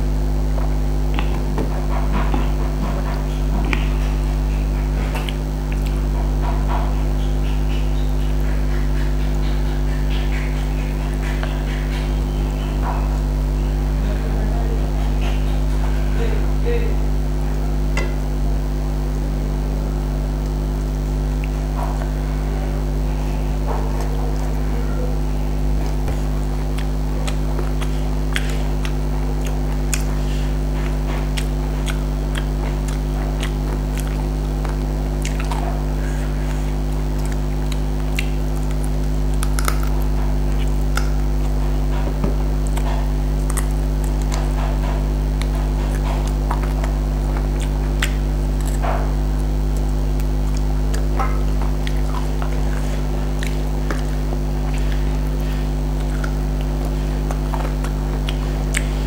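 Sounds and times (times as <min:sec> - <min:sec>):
chewing: 0:00.1 - 0:16.3, 0:20.1 - 0:59.0
fingers squishing food: 0:23.0 - 0:59.0
wet mouth clicks: 0:25.8 - 0:59.0.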